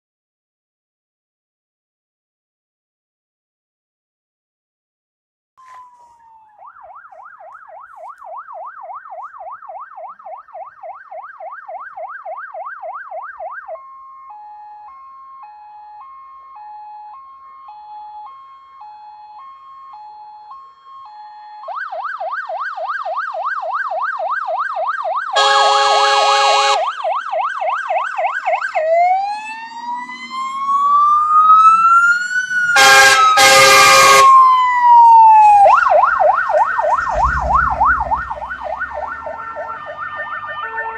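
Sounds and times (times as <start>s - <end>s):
fire engine sirens: 5.6s - 40.9s
loud horn blasts: 25.4s - 26.8s, 32.8s - 34.3s.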